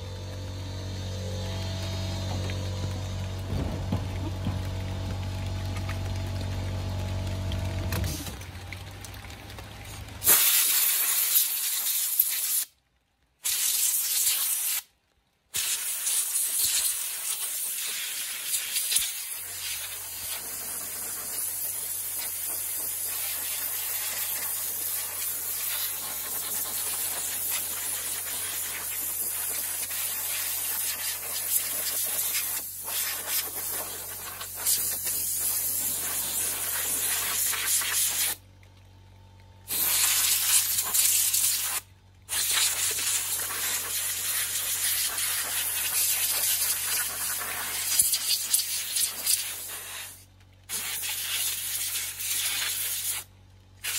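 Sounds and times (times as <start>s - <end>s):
water spray hissing: 10.2s - 12.7s, 13.4s - 14.9s, 15.5s - 38.4s, 39.7s - 53.9s.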